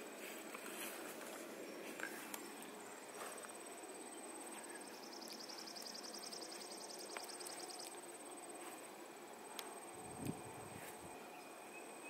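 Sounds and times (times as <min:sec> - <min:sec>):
outdoor background hiss: 0:00.0 - 0:12.0
lower pulsing insect trill: 0:00.1 - 0:12.0
insects trilling high-pitched: 0:01.9 - 0:08.6.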